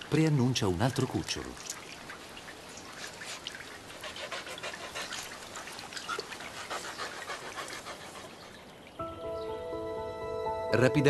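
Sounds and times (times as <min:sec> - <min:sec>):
mink panting rapidly: 0:03.0 - 0:08.8.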